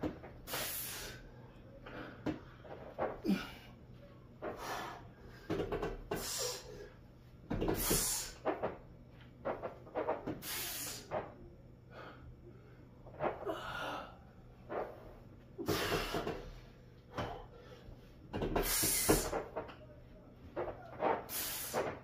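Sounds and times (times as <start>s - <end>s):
person breathing hard: 11.9s - 14.4s.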